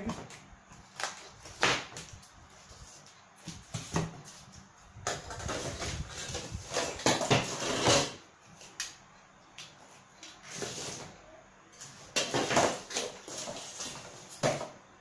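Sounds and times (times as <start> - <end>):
cardboard and tools rustling and knocking: 0.0 - 8.2, 11.8 - 14.8.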